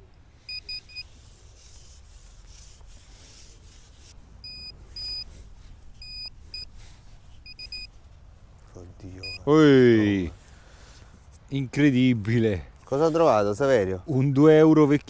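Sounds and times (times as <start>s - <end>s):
scraping rustling noise: 0.0s - 15.0s
metal detector beeping: 0.4s - 1.2s, 4.4s - 5.4s, 6.0s - 6.7s, 7.4s - 8.0s, 9.2s - 9.6s.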